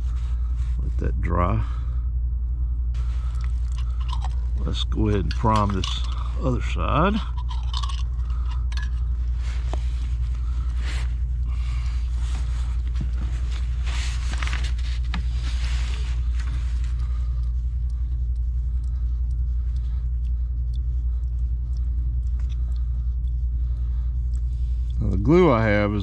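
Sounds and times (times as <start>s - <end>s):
steady low rumble: 0.0s - 26.0s
scratchy brushing and rustling: 8.9s - 17.0s.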